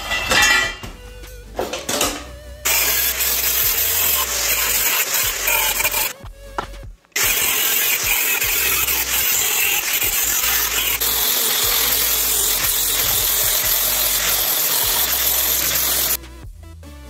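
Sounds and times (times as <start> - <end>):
angle grinder grinding steel: 1.7 - 6.1, 7.2 - 16.2.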